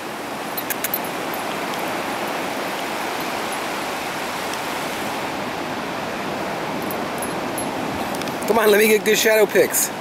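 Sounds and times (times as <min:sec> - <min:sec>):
ocean surf on sandy beach: 0:00.0 - 0:10.0.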